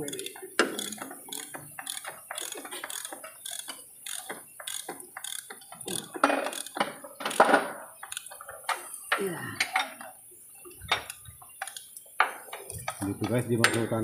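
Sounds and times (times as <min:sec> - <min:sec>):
ratchet wrench clicking: 0:00.0 - 0:08.9, 0:11.0 - 0:12.0.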